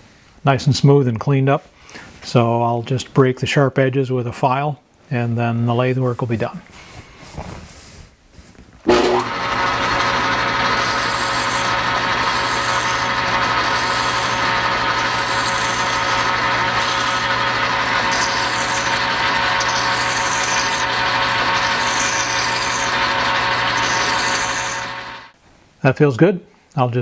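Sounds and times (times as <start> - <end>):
metal lathe running: 8.9 - 25.4
hand file strokes on metal: 9.8 - 25.2.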